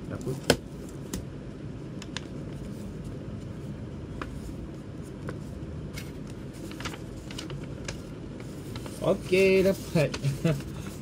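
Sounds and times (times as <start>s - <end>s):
low background hum: 0.0s - 11.0s
paper crinkling: 2.2s - 11.0s.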